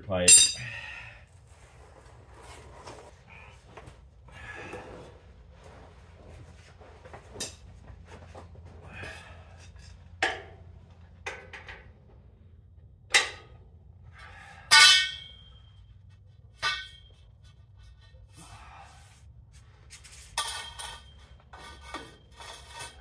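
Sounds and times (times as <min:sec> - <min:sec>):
metal bar clanking: 0:00.2 - 0:00.8, 0:13.1 - 0:13.6, 0:14.2 - 0:15.6, 0:16.6 - 0:17.2, 0:20.4 - 0:23.0.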